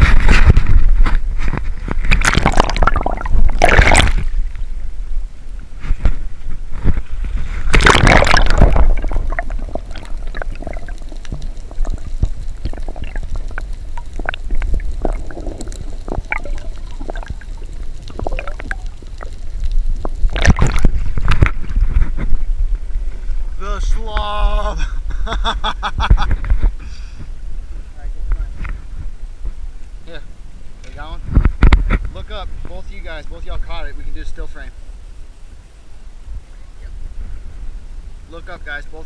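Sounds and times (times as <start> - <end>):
underwater gurgling: 1.8 - 5.8, 6.7 - 23.5
seawater sloshing and splashing: 1.9 - 4.5, 6.8 - 19.4, 20.3 - 21.9
bubbles crackling: 2.0 - 4.8, 7.4 - 22.4.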